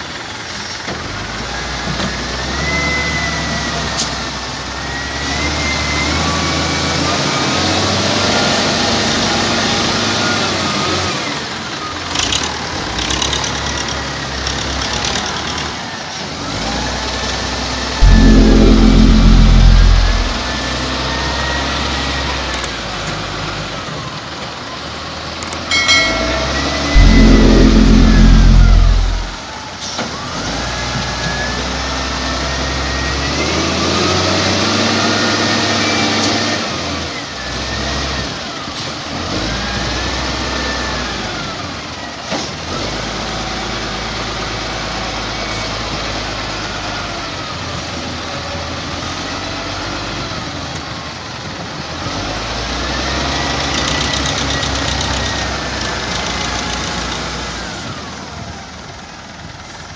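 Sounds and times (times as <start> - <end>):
loud low rumble: 18.0 - 20.6, 26.0 - 29.4.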